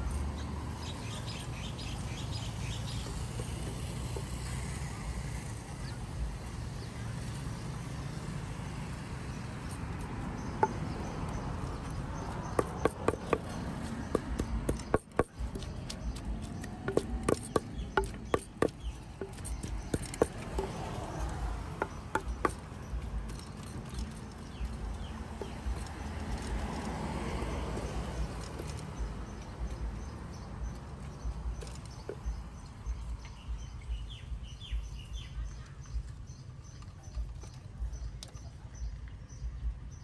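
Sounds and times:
utensils knocking and tapping: 0:03.0 - 0:04.3, 0:10.0 - 0:26.8.

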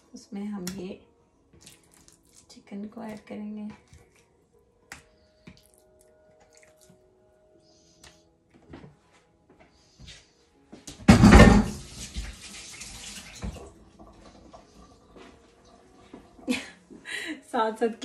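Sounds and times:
kitchen tap running: 0:11.1 - 0:16.6.

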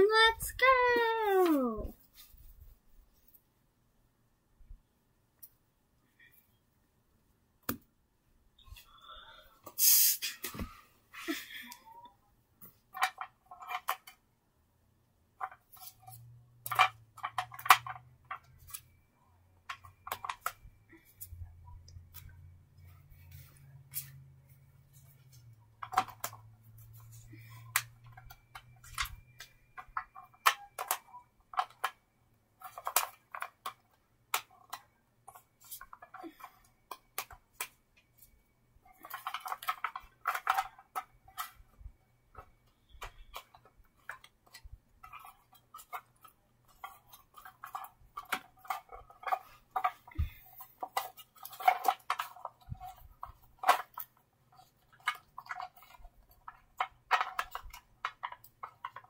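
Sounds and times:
small objects clicking and tapping: 0:11.5 - 0:14.2, 0:15.3 - 0:24.3, 0:24.9 - 0:59.0.

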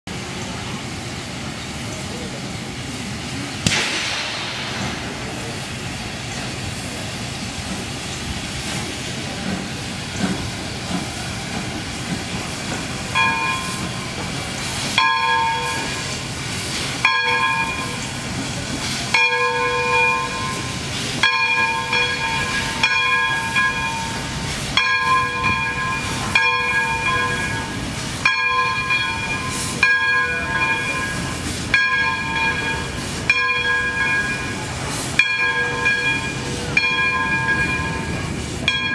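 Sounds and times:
steam locomotive hissing: 0:00.1 - 0:38.9
locomotive bell clanging: 0:12.3 - 0:38.9.

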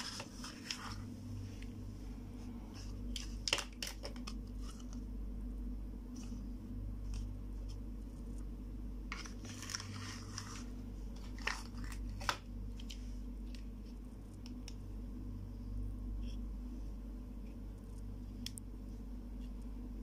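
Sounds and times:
plastic toys rustling: 0:00.0 - 0:01.7, 0:02.7 - 0:05.0, 0:09.1 - 0:14.0
low hum: 0:00.0 - 0:20.0.

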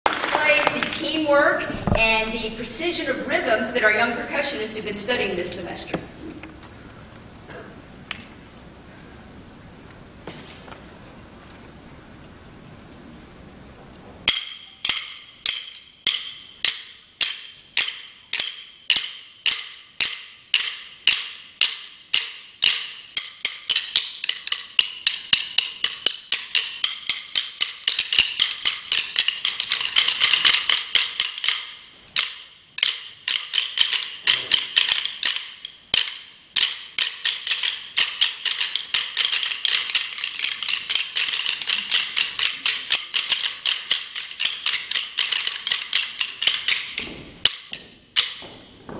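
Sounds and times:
drumsticks clicking together: 0:14.3 - 0:48.6.

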